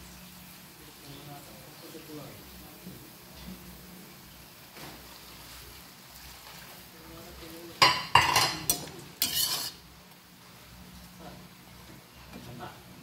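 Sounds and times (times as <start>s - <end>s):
utensil scraping metal pan: 8.2s - 9.8s.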